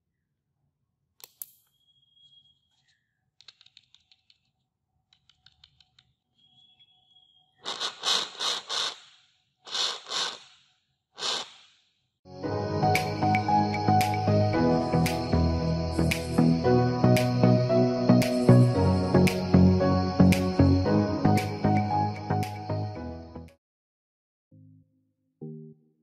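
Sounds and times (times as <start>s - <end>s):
high whistle: 1.6s - 2.8s.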